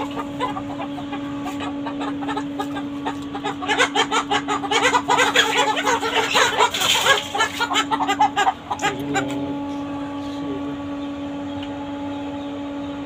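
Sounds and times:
hen clucking in alarm: 0.0 - 13.0.

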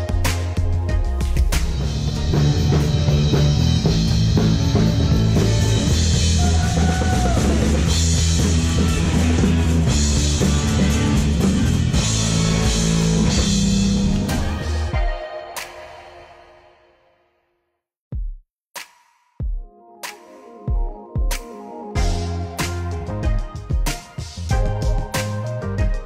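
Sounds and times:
bass line: 0.0 - 15.0, 22.0 - 26.0
electric guitar: 0.0 - 15.0
drum kit with crashing cymbals: 0.0 - 15.9, 21.3 - 26.0.

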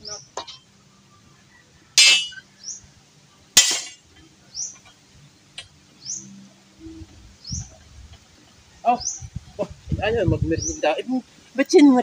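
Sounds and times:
sharp ringing metal clinks: 2.0 - 2.4.

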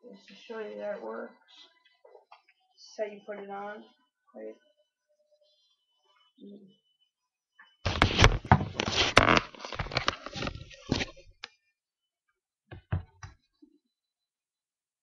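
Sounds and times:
plastic chest protector clattering: 7.9 - 11.2.

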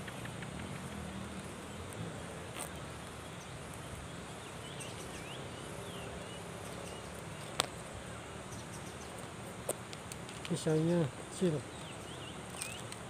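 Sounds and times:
insect hum: 0.0 - 13.0
bird chirps: 4.3 - 7.6, 10.5 - 13.0.

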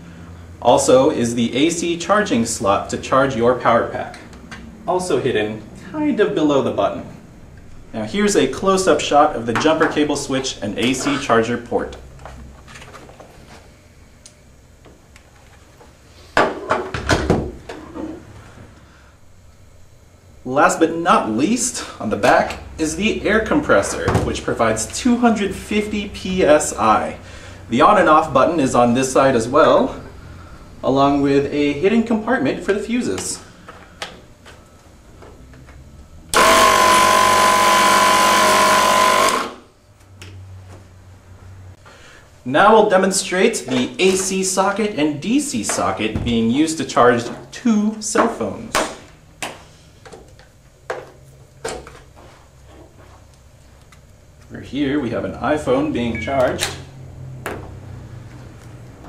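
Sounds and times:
air compressor running: 21.2 - 29.0, 36.1 - 39.8.

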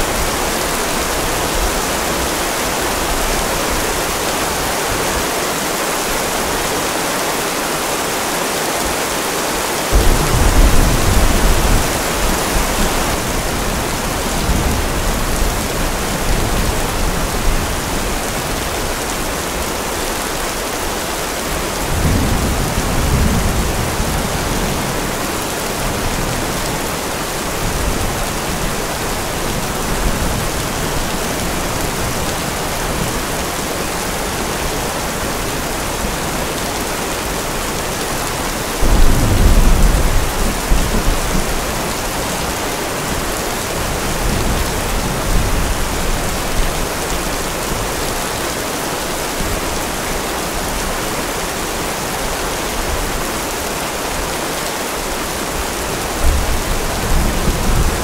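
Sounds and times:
steady rain: 0.0 - 58.0
rolling thunder: 9.9 - 17.5, 38.8 - 42.0.

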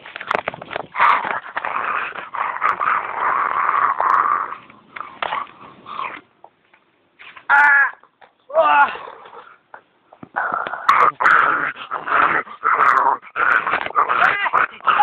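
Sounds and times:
raspy growling: 0.9 - 6.2, 10.3 - 15.0.

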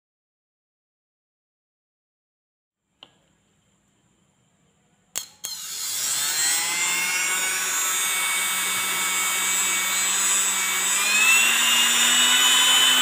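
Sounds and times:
electric motor whine: 5.4 - 13.0.

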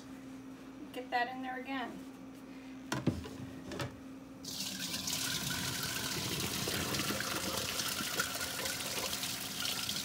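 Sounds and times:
water pouring into sink: 4.4 - 10.0.

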